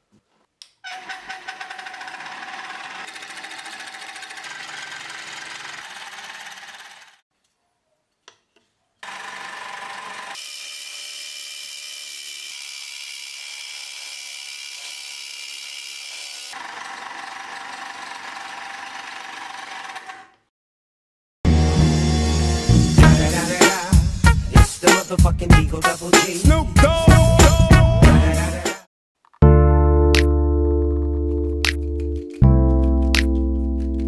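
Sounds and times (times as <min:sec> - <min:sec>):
scroll saw running: 0:00.9 - 0:07.2, 0:09.0 - 0:20.5.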